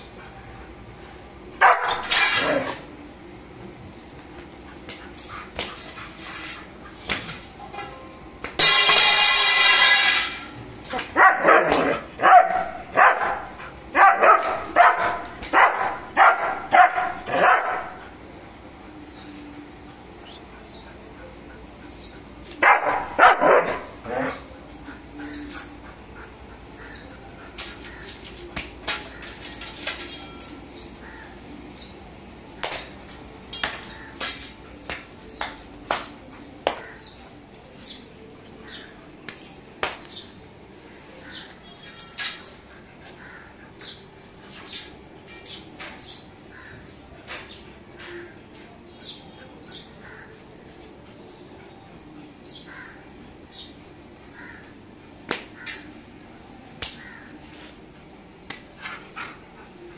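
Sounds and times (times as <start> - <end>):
dog barking aggressively: 1.6 - 2.8, 11.2 - 18.0, 22.6 - 24.4.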